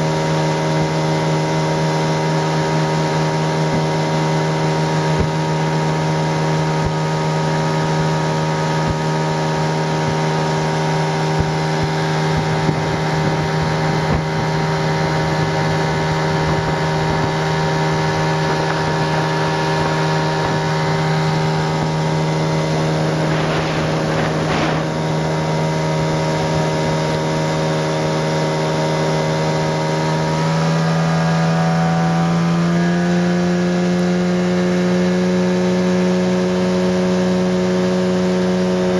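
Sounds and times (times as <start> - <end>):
outboard motor running: 0.0 - 38.9.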